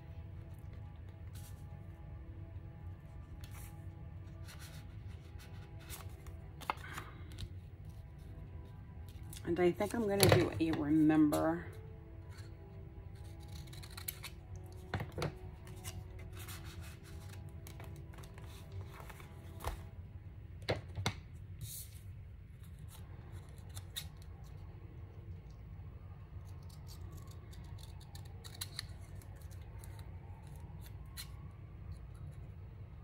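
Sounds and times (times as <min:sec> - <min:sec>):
scissors snipping paper: 0:13.2 - 0:14.9, 0:26.4 - 0:32.2.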